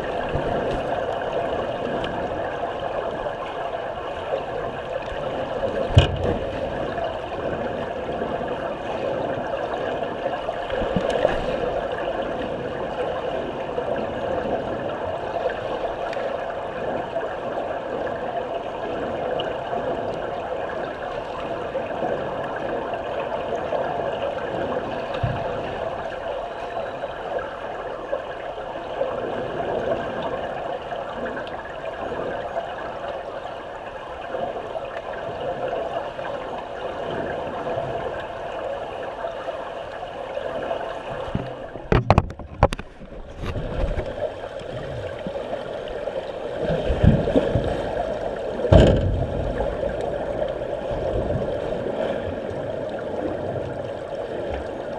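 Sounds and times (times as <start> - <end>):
muffled underwater water rush: 0.0 - 54.9
sharp knocks: 48.7 - 49.3.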